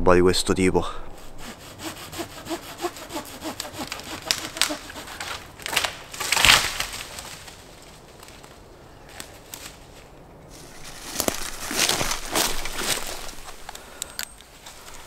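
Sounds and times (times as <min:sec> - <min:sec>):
hand saw cutting branch: 0:01.2 - 0:06.7
branch cracking: 0:03.2 - 0:15.0.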